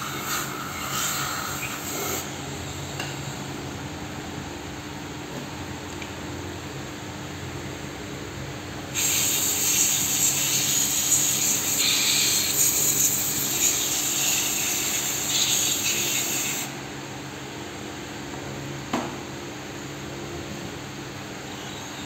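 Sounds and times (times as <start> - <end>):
aerosol can spraying hiss: 9.0 - 10.9.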